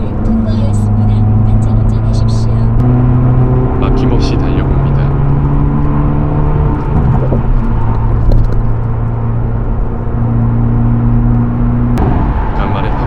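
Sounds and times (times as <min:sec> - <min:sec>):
car engine and exhaust: 0:00.0 - 0:13.0
tyre and road noise: 0:00.0 - 0:13.0.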